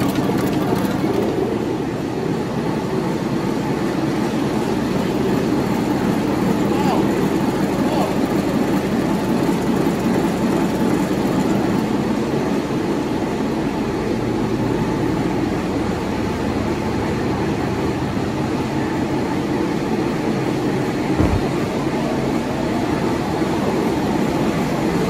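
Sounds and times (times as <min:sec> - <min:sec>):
diesel engine droning: 0:00.0 - 0:12.9
low thump: 0:21.2 - 0:21.6.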